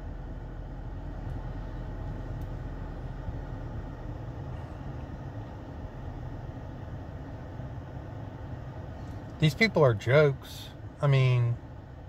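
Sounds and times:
car engine rumble inside cabin: 0.0s - 12.0s.

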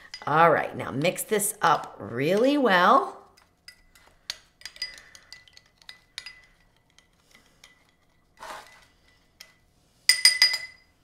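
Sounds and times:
metal spoon clinking glass bowl: 3.6s - 8.0s, 9.0s - 11.0s.

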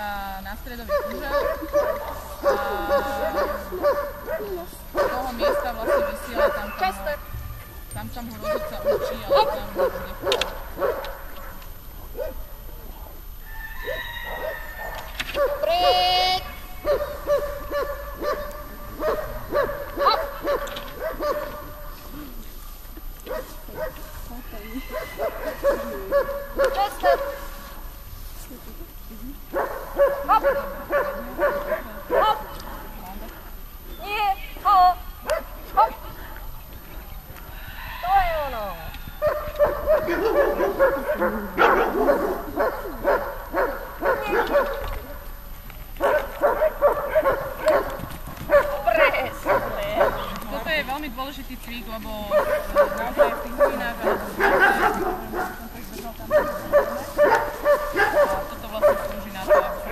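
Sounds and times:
dog barking: 0.8s - 7.4s, 8.4s - 12.7s, 13.8s - 22.4s, 23.2s - 27.8s, 29.5s - 33.0s, 35.2s - 36.1s, 39.2s - 45.4s, 46.0s - 50.7s, 52.2s - 59.9s.

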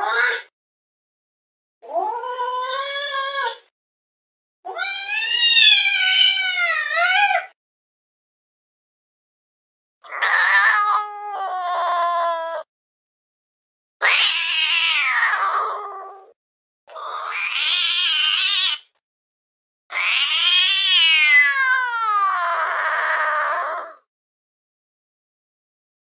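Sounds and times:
cat meowing: 4.7s - 7.6s, 10.1s - 12.7s, 14.0s - 16.4s, 17.0s - 18.8s, 19.9s - 24.0s.

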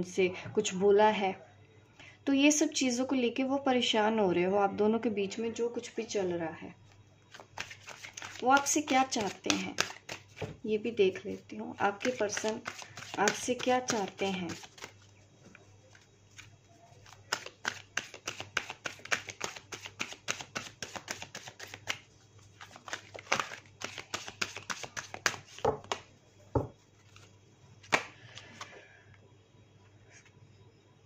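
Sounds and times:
cards being shuffled: 7.3s - 10.6s, 11.8s - 15.1s, 15.8s - 28.8s
sharp card snap: 27.8s - 28.1s.

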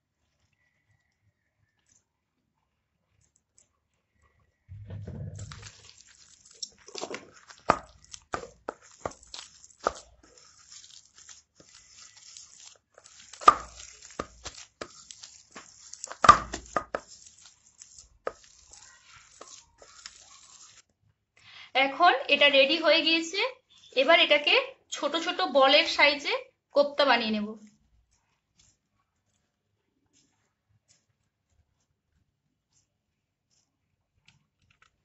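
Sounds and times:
hand squelching wet mash: 1.8s - 21.0s, 27.7s - 35.0s.

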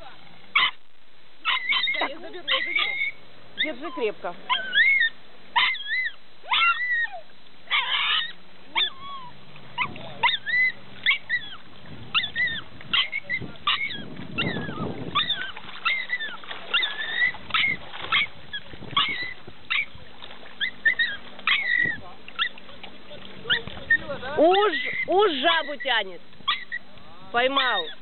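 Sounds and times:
dog whining: 1.5s - 19.9s, 20.6s - 22.6s, 26.5s - 26.8s.

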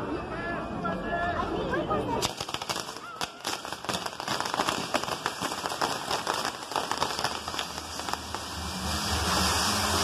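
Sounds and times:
fireworks crackling: 2.2s - 10.0s.

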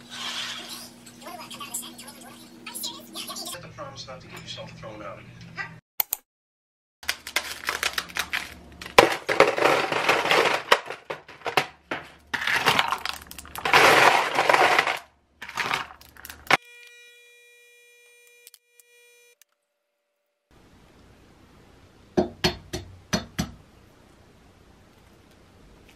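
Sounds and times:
ice cubes clattering into tumbler: 7.0s - 16.6s.

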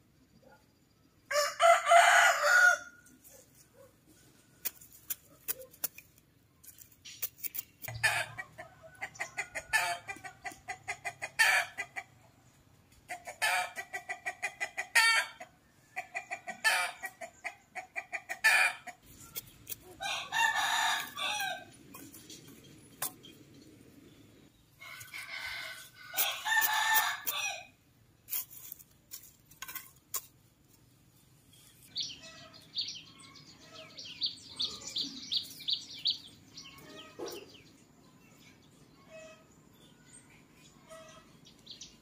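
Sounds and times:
rooster crowing: 1.3s - 3.0s, 20.0s - 21.7s, 24.8s - 27.7s
chickens clucking: 3.2s - 27.6s, 31.9s - 39.6s, 40.4s - 42.0s.

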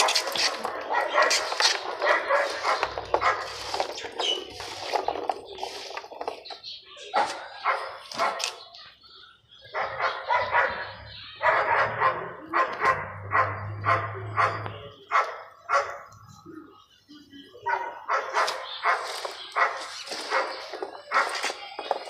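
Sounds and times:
dog barking: 0.0s - 3.7s, 7.1s - 8.6s, 9.7s - 16.2s, 17.6s - 21.5s.

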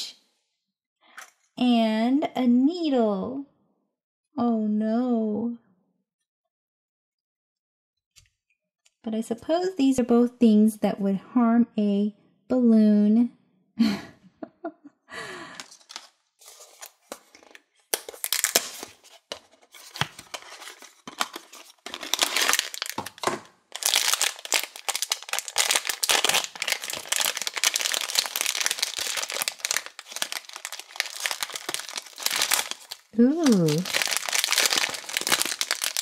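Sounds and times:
foil bag crinkling: 15.6s - 19.3s, 19.9s - 36.0s.

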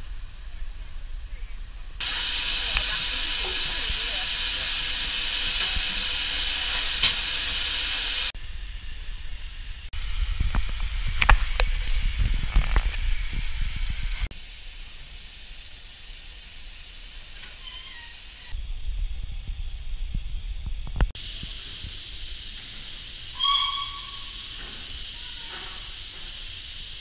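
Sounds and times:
rumble of coal fire: 0.0s - 23.7s
hiss of escaping steam: 2.0s - 8.4s, 14.3s - 18.6s, 21.1s - 27.0s.

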